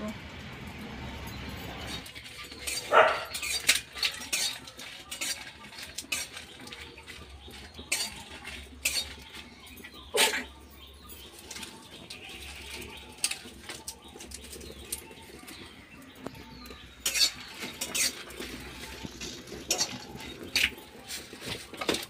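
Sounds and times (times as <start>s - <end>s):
spatula clattering: 1.9s - 10.6s, 11.2s - 22.0s
metal spatula scraping a wok: 2.0s - 10.5s, 16.5s - 22.0s.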